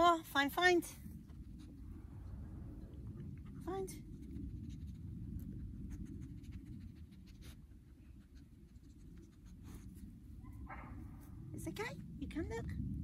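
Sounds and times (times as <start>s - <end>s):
wind rumble on microphone: 0.0s - 13.0s
dog sniffing: 3.3s - 10.3s.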